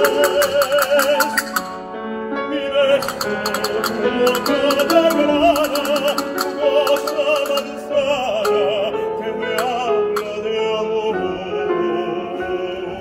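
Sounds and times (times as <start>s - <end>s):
crisp clicking rhythm: 0.0s - 1.9s, 2.8s - 10.5s
piano accompaniment: 0.0s - 13.0s
tenor singing with vibrato: 0.0s - 13.0s.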